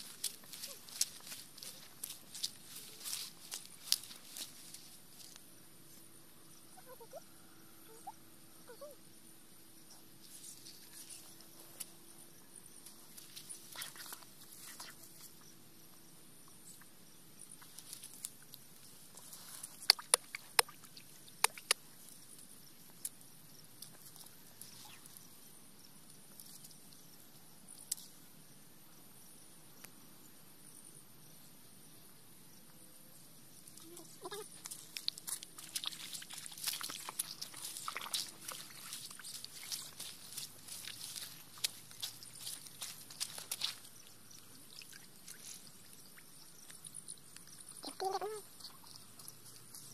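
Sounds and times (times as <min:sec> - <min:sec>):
footsteps through dry grass: 0:00.0 - 0:05.4, 0:34.4 - 0:45.9.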